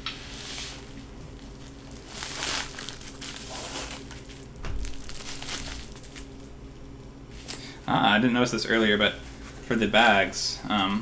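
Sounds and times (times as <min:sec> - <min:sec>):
plastic bag crinkling: 0:01.3 - 0:06.6.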